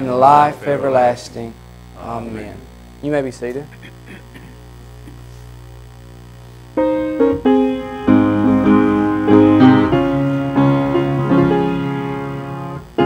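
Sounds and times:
piano chords: 0:06.8 - 0:13.0.

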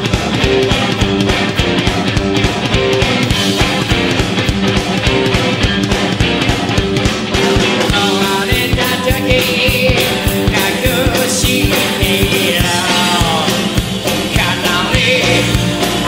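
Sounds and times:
fast driving drum beat: 0:00.0 - 0:16.0
guitars: 0:00.0 - 0:16.0
person singing: 0:07.4 - 0:16.0.

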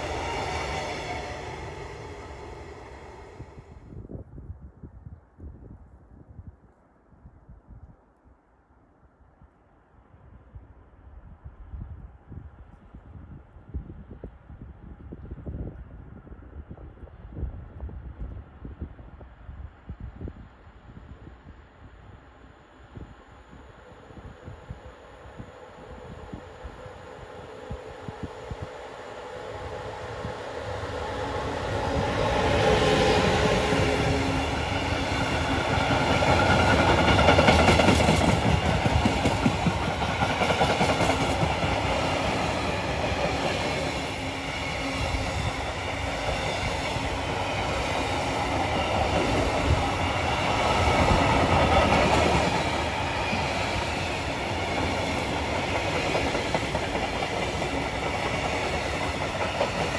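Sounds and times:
freight train rumbling past: 0:00.0 - 0:04.1, 0:23.5 - 0:59.9
wheels clacking on rail: 0:31.0 - 0:45.0, 0:45.6 - 0:59.9.

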